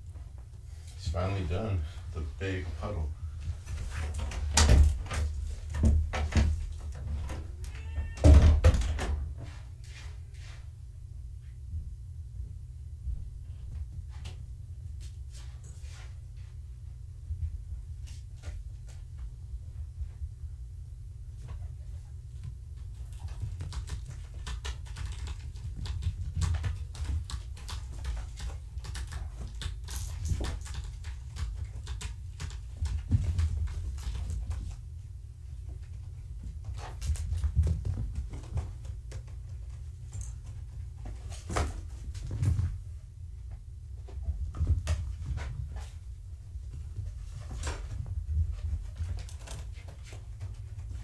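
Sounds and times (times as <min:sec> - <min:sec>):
low steady hum: 0:00.0 - 0:51.0
kitten paws scratching and tapping: 0:21.3 - 0:51.0.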